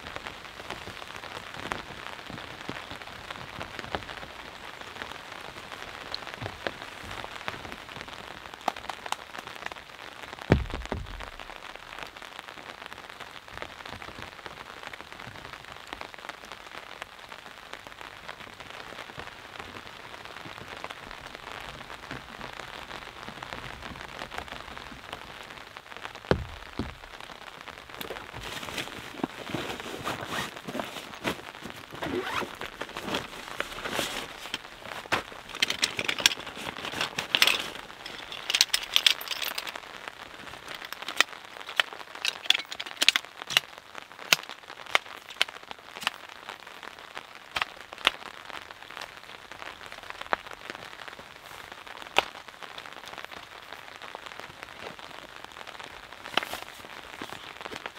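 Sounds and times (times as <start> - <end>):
rain tapping on a tarp: 0.0 - 57.9
gear rustling: 28.0 - 39.8, 40.5 - 43.6.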